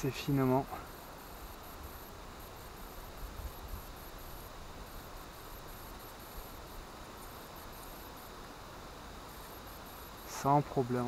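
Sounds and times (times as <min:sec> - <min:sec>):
insect chirping trills: 0:00.0 - 0:11.0.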